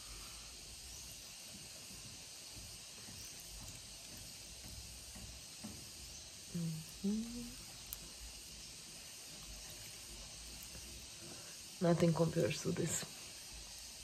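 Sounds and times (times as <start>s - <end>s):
faint steady hiss: 0.0s - 14.0s
person humming: 6.5s - 7.7s.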